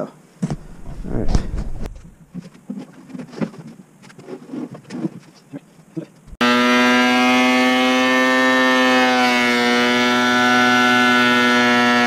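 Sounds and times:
thickness planer motor whine: 6.4 - 12.0.

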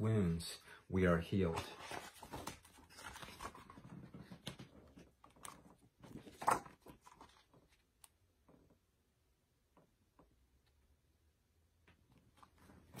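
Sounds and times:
book rustling and tapping: 1.4 - 7.9.

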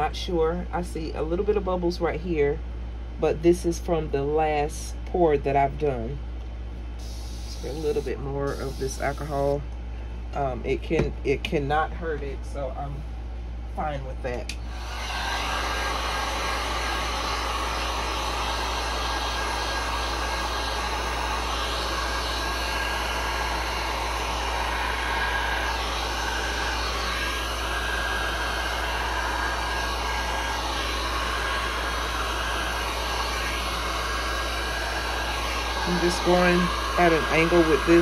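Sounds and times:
heat gun blowing hot air: 7.0 - 9.6, 14.6 - 38.0.

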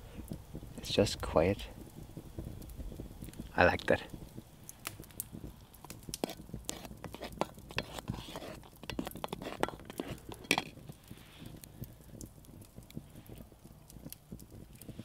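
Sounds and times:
spoon scraping metal pot: 6.2 - 10.8.

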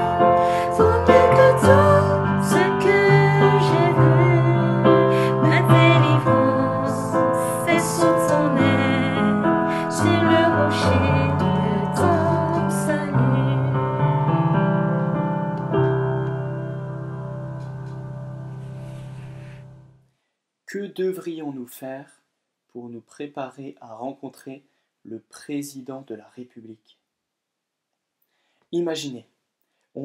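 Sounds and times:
woman singing: 0.0 - 14.1
electric keyboard chords: 0.0 - 20.0.

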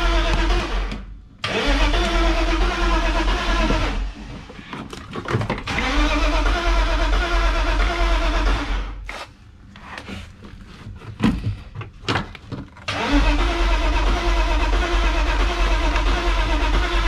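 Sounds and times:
engine cranking on starter motor: 0.0 - 9.3, 12.8 - 17.0.

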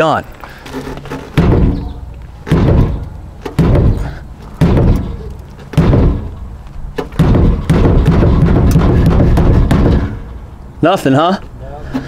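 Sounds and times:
loud thuds on fuel tank: 1.4 - 6.4, 7.0 - 10.2.

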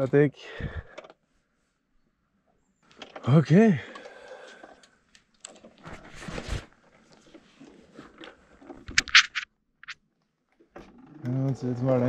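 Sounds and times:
clothing rustling: 5.6 - 10.0.

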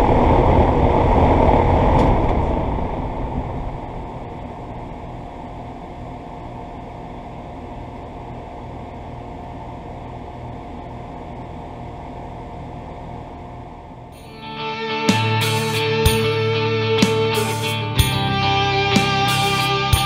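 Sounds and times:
air conditioner fan whirring: 0.0 - 20.0.

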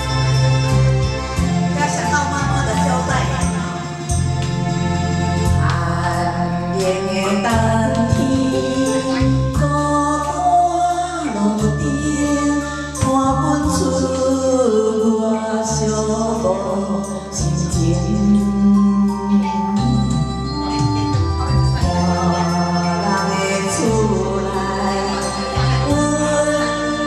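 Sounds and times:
electronic organ: 0.0 - 27.0
woman singing into a microphone: 5.5 - 27.0.

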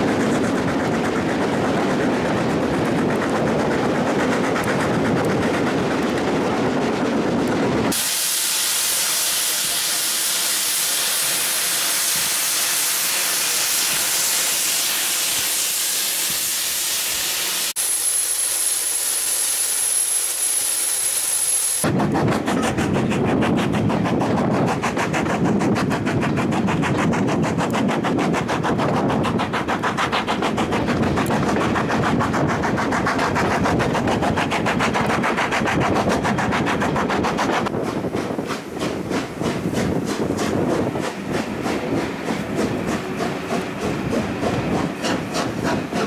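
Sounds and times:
carriage wheel and rail noise: 0.0 - 46.0
steam locomotive exhaust beats: 0.0 - 46.0.

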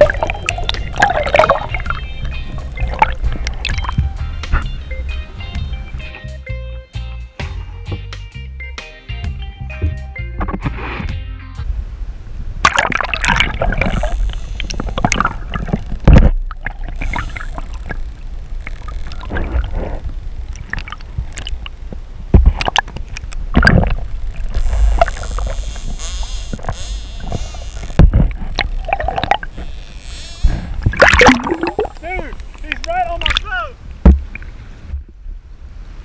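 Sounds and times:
low water rumble: 0.0 - 6.2, 11.6 - 36.0
dolphins whistling and clicking: 13.8 - 16.0, 16.7 - 21.8
loud thumps: 14.9 - 16.4, 23.5 - 33.4, 34.0 - 35.1.

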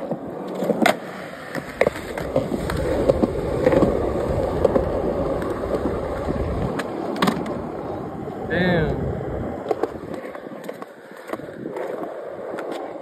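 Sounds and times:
skateboard clacking on concrete: 0.0 - 8.4, 9.5 - 13.0
skateboard wheels rolling: 0.0 - 13.0.

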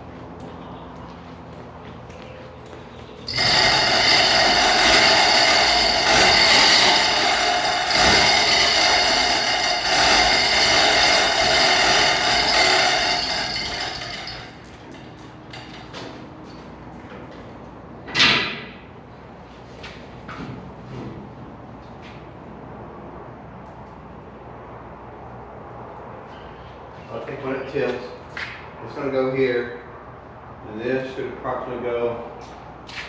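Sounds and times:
chain hoist whirring: 3.3 - 15.8.

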